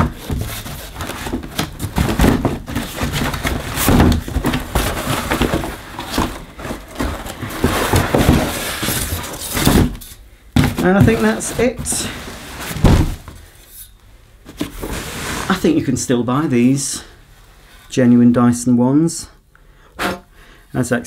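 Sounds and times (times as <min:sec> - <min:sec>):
cardboard scraping and rustling: 0:00.0 - 0:13.5, 0:14.4 - 0:15.9.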